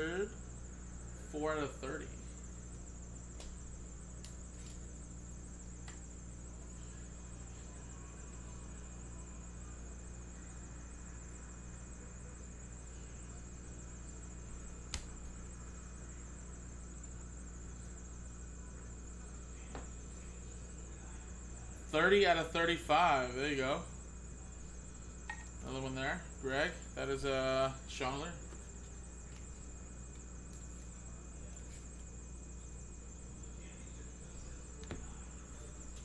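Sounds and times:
high steady whine: 0.0 - 36.0.

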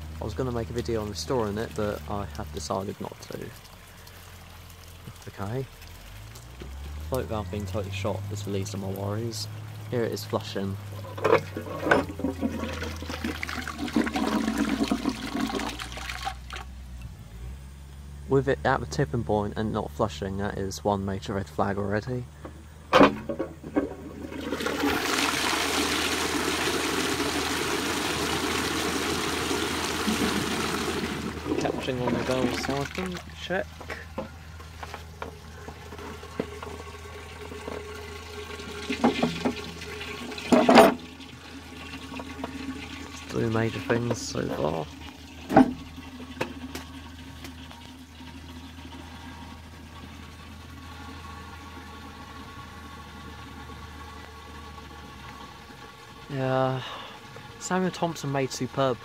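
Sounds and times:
toilet cistern flushing: 7.0 - 16.6, 23.1 - 59.0
light metal clanks: 10.9 - 12.7, 40.5 - 41.1.

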